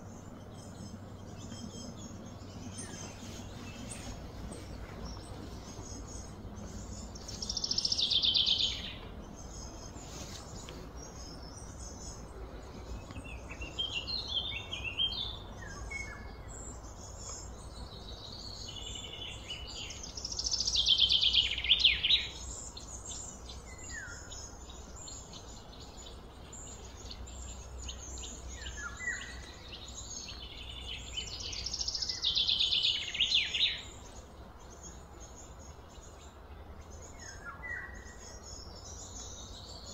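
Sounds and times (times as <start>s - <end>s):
birds chirping: 0.0s - 39.9s
songbird trilling: 0.0s - 39.9s.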